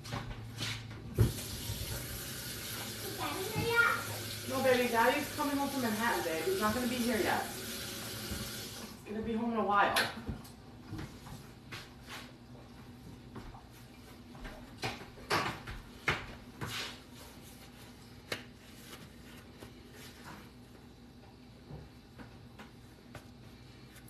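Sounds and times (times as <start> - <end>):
paper towel rustling: 16.7 - 20.8.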